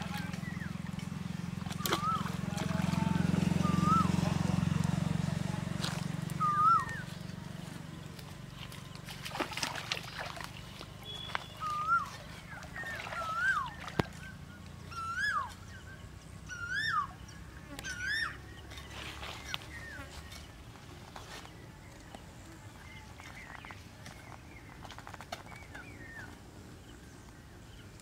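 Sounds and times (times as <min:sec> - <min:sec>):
bird whistled calls: 0:01.7 - 0:02.4, 0:03.6 - 0:04.2, 0:06.4 - 0:07.1, 0:11.0 - 0:18.4.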